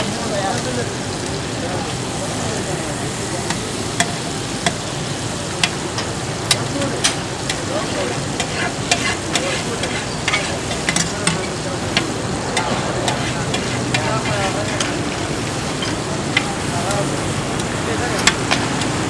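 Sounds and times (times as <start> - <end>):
food sizzling in oil: 0.0 - 19.0
metal spatula clacking on griddle: 3.5 - 4.9, 5.6 - 16.5.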